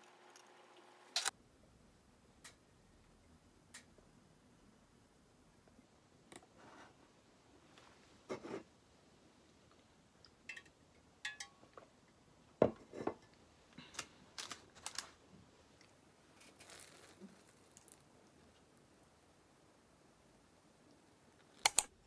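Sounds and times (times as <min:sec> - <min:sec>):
glass knocking on wooden desk: 0:12.6 - 0:13.2
croissant tearing crackles: 0:16.4 - 0:18.0.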